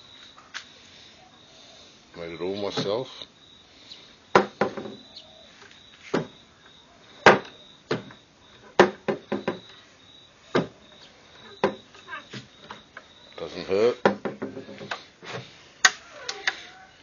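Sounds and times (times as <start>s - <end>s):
wooden lid knocking on frame: 4.4s - 5.0s, 8.8s - 9.6s, 14.0s - 14.8s.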